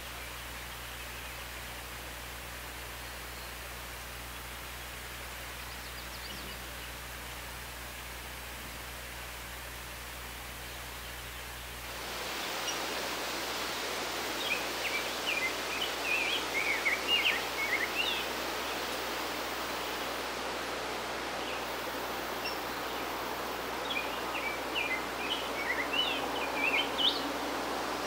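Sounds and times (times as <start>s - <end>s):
bird singing warbled song: 4.3s - 7.1s, 12.4s - 20.1s, 21.4s - 28.0s
steady rushing background noise: 11.8s - 28.0s.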